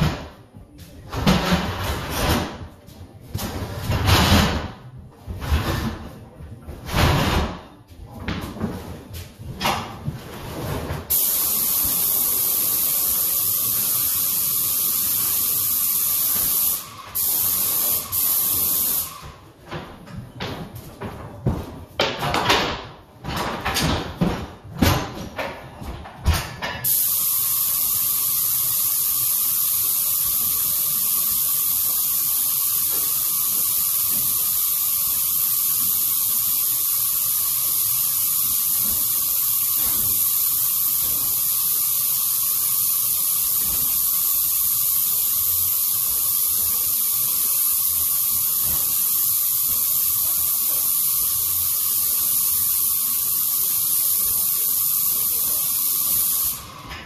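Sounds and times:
paint spray gun hissing: 0:11.1 - 0:19.2, 0:26.8 - 0:56.7.

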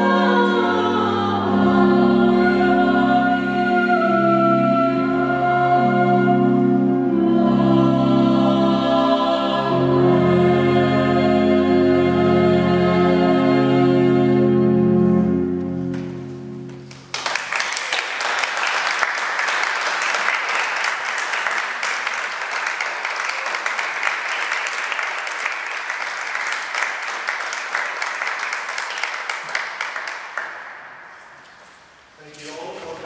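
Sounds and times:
choir singing: 0:00.0 - 0:15.5
pipe organ chord: 0:09.6 - 0:16.9
audience applause: 0:16.9 - 0:31.0.

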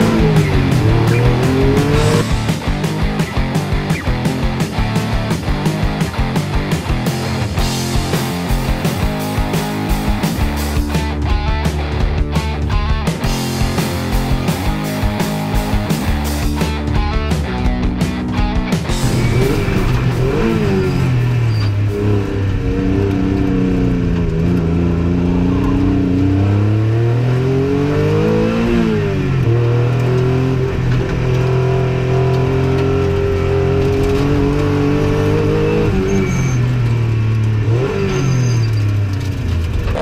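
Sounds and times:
race car engine revving: 0:00.0 - 0:40.0.

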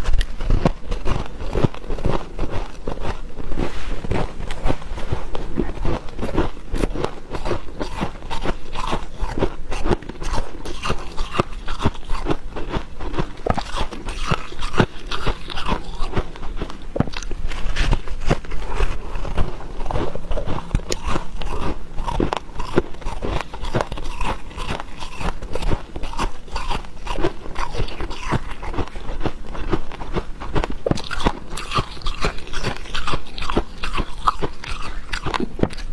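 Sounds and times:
person chewing squeaky frost: 0:00.0 - 0:35.9.

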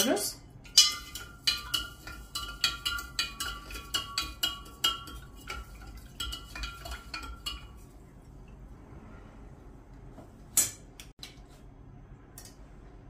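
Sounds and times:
spoon clinking in glass jar: 0:00.7 - 0:07.8.

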